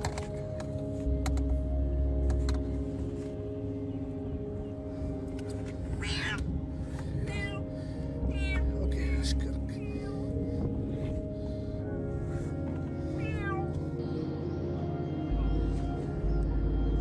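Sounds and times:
cat meowing: 0:06.0 - 0:06.5, 0:07.2 - 0:07.6, 0:08.3 - 0:08.7, 0:13.2 - 0:13.8.

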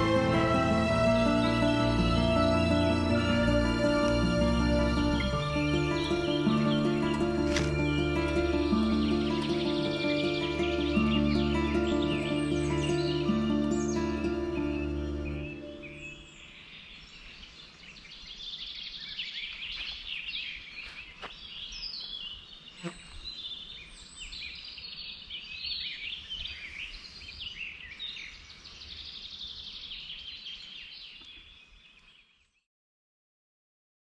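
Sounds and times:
background music: 0:00.0 - 0:16.2
songbirds chirping: 0:00.0 - 0:32.7.

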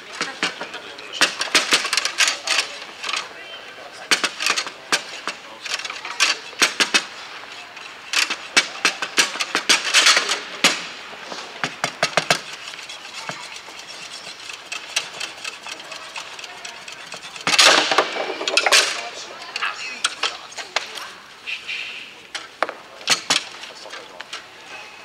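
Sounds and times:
foosball rods knocking: 0:00.2 - 0:03.2, 0:04.1 - 0:07.2, 0:07.8 - 0:20.9
foosball ball clacking: 0:06.2 - 0:07.2, 0:08.1 - 0:20.9.

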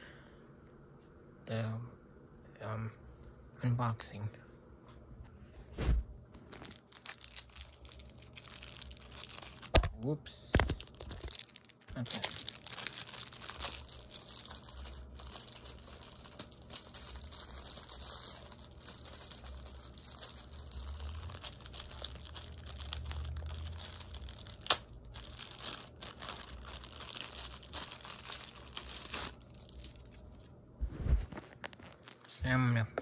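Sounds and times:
packaging crinkling and tearing: 0:06.4 - 0:30.5, 0:31.3 - 0:32.3.

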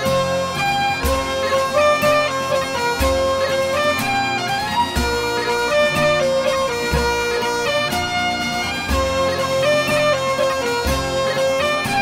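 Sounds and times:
bagpipe music: 0:00.0 - 0:12.0.

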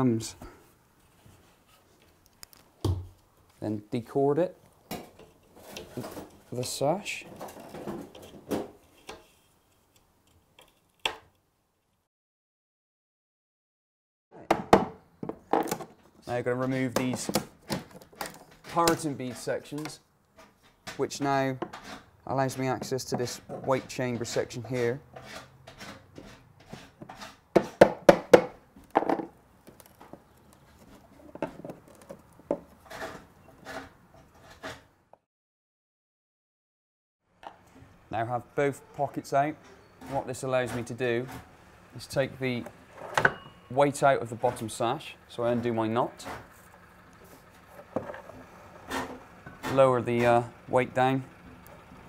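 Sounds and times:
sharp wooden knocks: 0:14.5 - 0:15.9, 0:27.5 - 0:29.3.

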